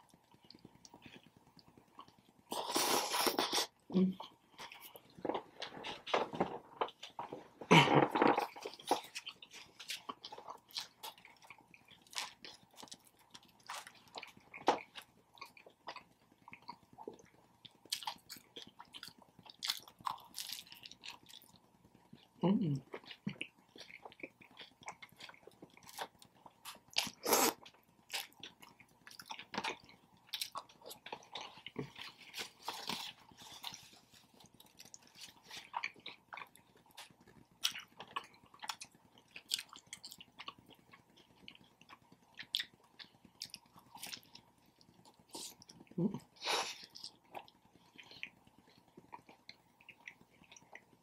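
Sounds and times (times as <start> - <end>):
chewing and wet mouth smacks: 22.9 - 46.0.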